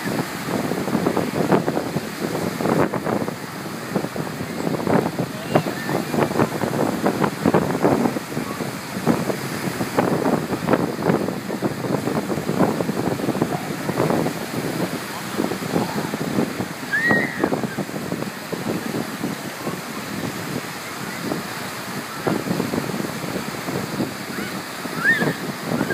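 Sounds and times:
small waves breaking: 0.0s - 25.9s
wind buffeting microphone: 0.0s - 25.9s
voices: 3.1s - 9.1s, 11.0s - 19.9s.

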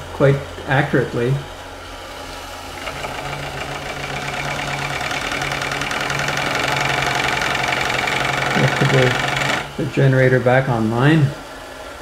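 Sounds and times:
steam engine clattering: 2.8s - 9.8s.

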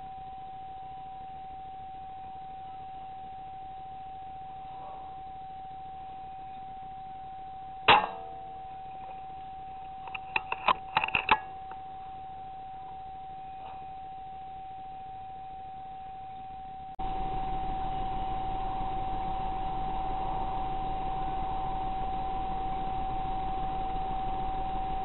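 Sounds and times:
rifle shot: 7.9s - 8.3s
metallic clicks of rifle cycling: 9.9s - 11.5s.

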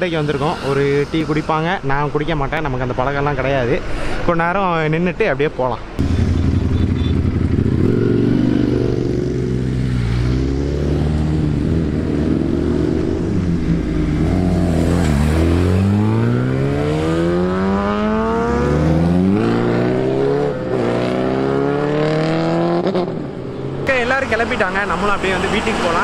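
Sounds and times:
engine accelerating away: 6.0s - 23.0s
superbike engines revving: 6.0s - 26.0s.

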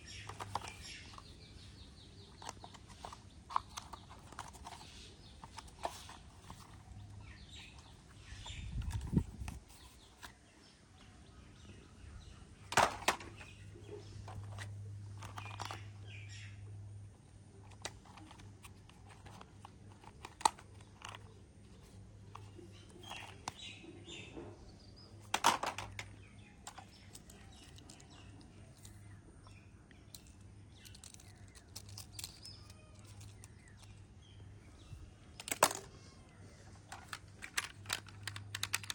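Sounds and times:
plastic toy vehicles clicking and rattling: 0.0s - 10.3s, 12.7s - 24.5s, 25.1s - 29.1s, 30.0s - 38.9s.

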